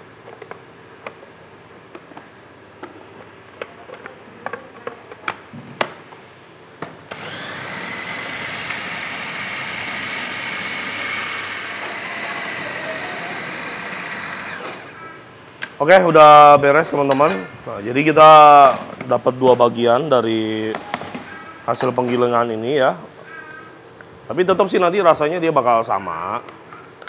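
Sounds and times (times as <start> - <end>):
electric food grinder whining: 7.1 - 15.0.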